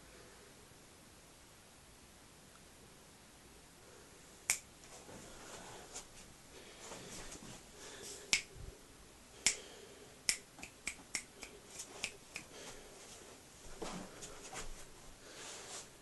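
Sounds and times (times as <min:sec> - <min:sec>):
fingers snapping: 0:04.5 - 0:04.7, 0:08.3 - 0:08.5, 0:09.4 - 0:09.7, 0:10.3 - 0:12.5.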